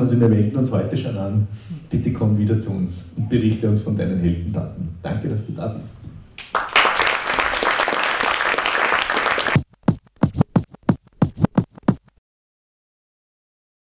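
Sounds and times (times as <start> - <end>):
record scratch swoops: 9.5 - 12.2.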